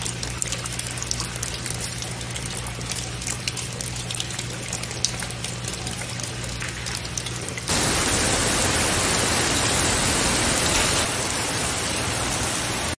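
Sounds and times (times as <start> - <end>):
low steady hum: 0.0 - 12.9
heavy rain on pond and stones: 0.0 - 13.0
trickling water: 0.0 - 13.0.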